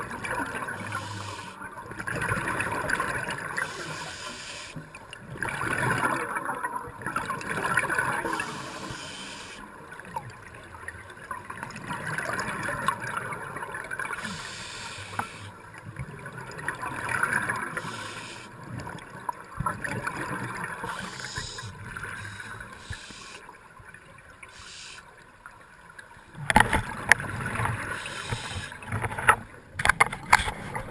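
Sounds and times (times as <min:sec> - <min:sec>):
muffled underwater bubbling: 0:00.0 - 0:09.7, 0:11.7 - 0:19.0, 0:19.6 - 0:23.5.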